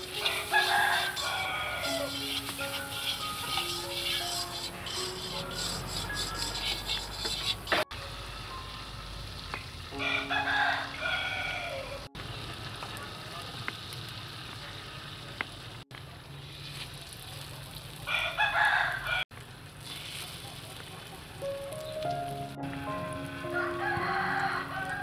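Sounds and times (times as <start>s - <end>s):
bread sizzling in butter: 0.0s - 7.5s, 12.2s - 18.2s, 19.4s - 21.4s
rooster crowing: 0.2s - 2.2s, 10.0s - 12.1s, 18.1s - 19.2s, 23.5s - 25.0s.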